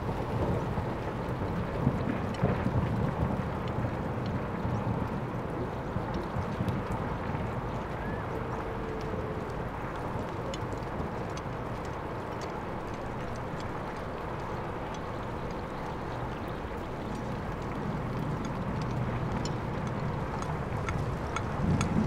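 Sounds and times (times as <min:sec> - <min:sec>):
faint ticks: 0:08.5 - 0:22.0.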